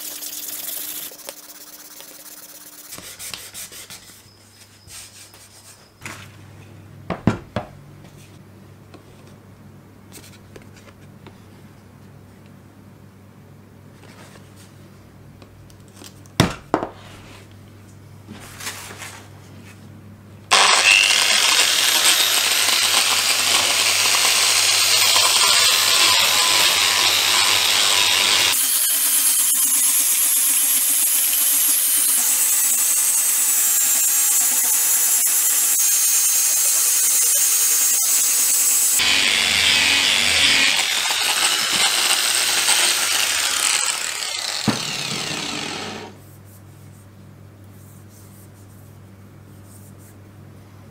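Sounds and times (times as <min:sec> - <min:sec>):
angle grinder sanding: 0:00.0 - 0:04.3, 0:20.5 - 0:46.2.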